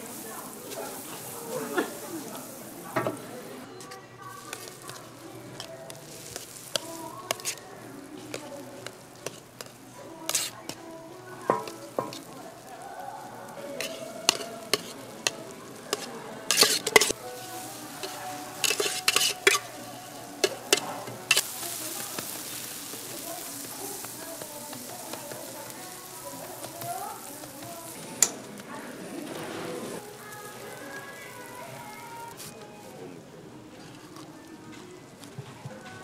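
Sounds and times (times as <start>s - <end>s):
margarine sizzling on a griddle: 0.0s - 36.0s
metal tongs clinking on a cup: 11.4s - 12.7s, 13.6s - 21.6s.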